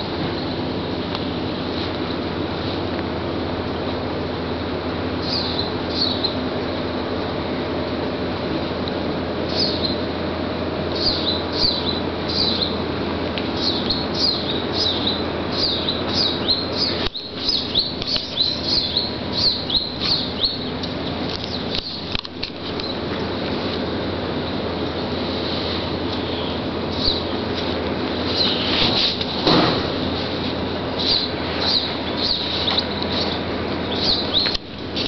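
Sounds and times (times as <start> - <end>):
steady background hum: 0.0 - 35.0
small birds chirping: 5.2 - 6.5, 9.4 - 10.1, 10.9 - 12.8, 13.4 - 23.4, 26.1 - 29.1, 30.9 - 35.0.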